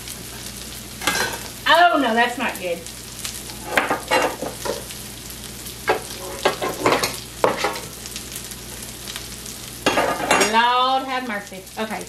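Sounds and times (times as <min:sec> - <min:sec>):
meat sizzling in a pan: 0:00.0 - 0:12.0.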